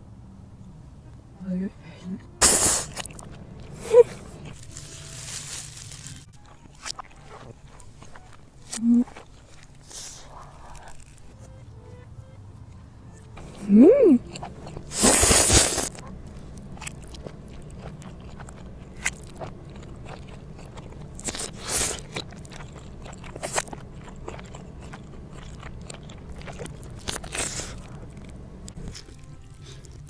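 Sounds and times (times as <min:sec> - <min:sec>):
reversed slurping and chewing: 0:02.4 - 0:04.7, 0:06.6 - 0:11.3, 0:13.4 - 0:30.0.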